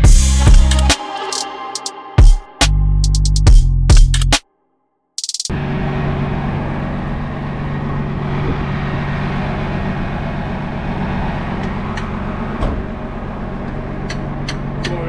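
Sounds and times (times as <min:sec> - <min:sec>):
truck engine idling: 0:05.5 - 0:15.0.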